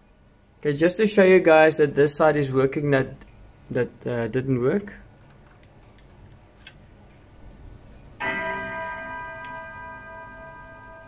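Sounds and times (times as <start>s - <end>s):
clock chime rods ringing: 8.2s - 11.0s.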